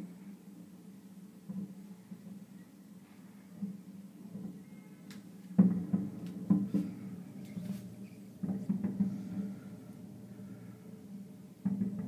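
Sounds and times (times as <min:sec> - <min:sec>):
steady low hum: 0:00.0 - 0:12.0
fireworks booming: 0:05.5 - 0:12.0.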